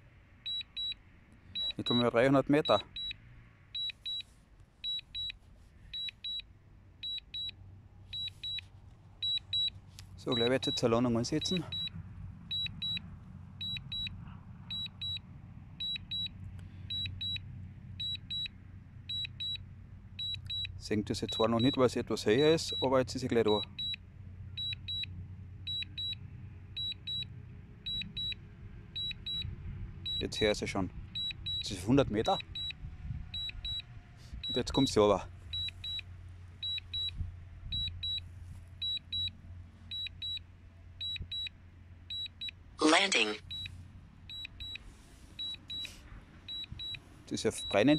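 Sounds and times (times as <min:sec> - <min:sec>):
faint low rumble: 0:26.8 - 0:42.7
high-pitched double beeps: 0:46.5 - 0:47.9.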